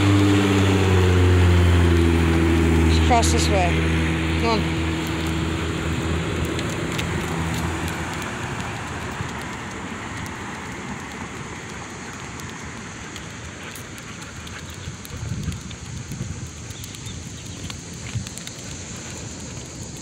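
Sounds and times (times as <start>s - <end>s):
road noise: 0.0s - 20.0s
vehicle engine humming: 0.0s - 20.0s.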